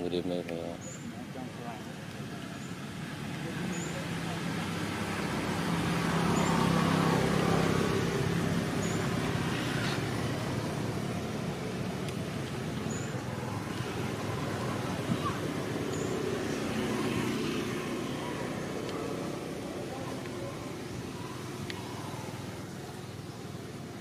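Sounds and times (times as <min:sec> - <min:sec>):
motor vehicle engine hum: 0:00.0 - 0:24.0.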